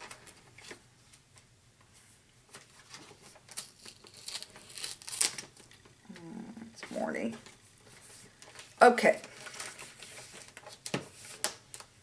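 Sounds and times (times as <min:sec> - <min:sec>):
paper and plastic rustling: 0:01.9 - 0:05.7, 0:06.8 - 0:12.0.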